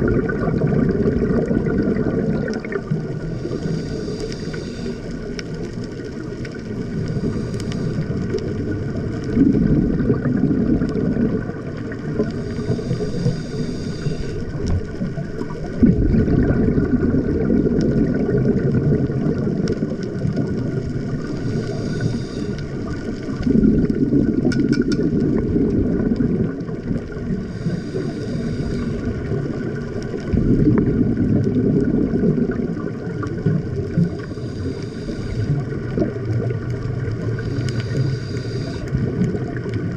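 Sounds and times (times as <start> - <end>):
bubbling exhale: 0.0 - 39.9
hissing regulator inhale: 3.2 - 5.7, 6.8 - 8.5, 12.2 - 15.0, 21.1 - 23.4, 27.3 - 29.4, 33.9 - 36.0, 37.2 - 39.2.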